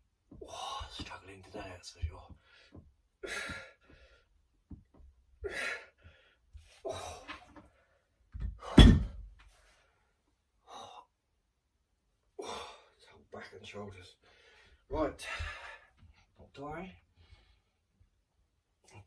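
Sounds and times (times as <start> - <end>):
man breathing hard and gasping: 2.3 - 4.4, 5.4 - 9.3, 14.2 - 16.2.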